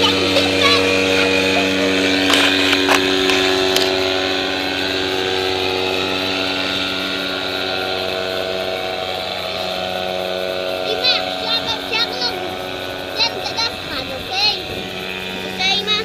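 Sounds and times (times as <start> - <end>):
paramotor engine droning: 0.0 - 16.0.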